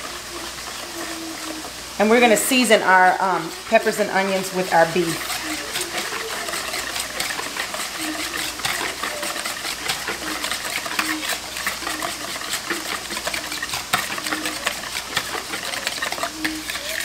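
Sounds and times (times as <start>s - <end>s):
whisk clicking against bowl: 3.4s - 17.0s
liquid sloshing: 5.0s - 17.0s.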